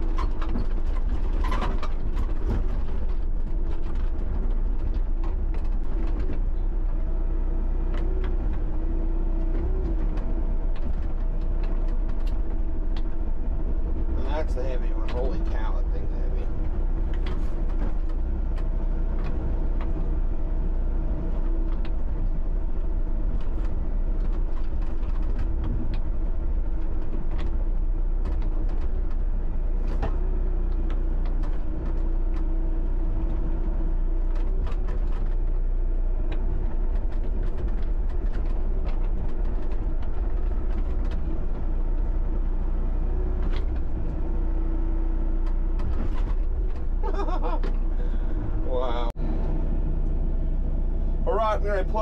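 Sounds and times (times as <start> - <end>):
excavator diesel engine running: 0.0 - 52.0.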